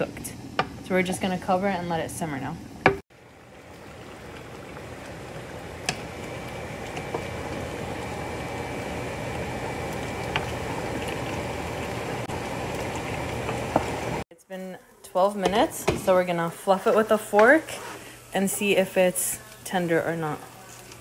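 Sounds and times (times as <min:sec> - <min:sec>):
stock bubbling in a pot: 0:02.1 - 0:14.2.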